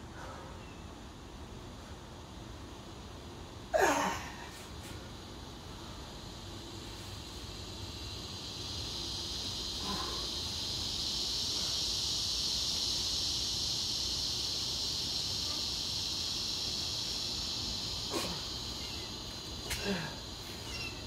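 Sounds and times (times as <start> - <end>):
insects buzzing: 0.0 - 21.0.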